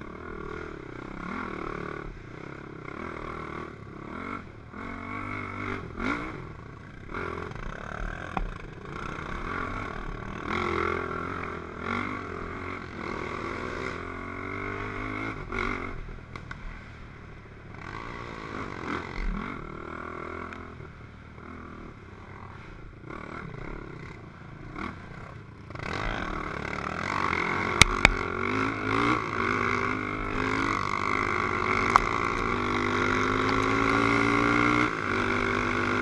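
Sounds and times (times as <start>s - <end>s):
quad engine revving: 0.0s - 16.1s, 17.8s - 20.7s, 21.4s - 36.0s.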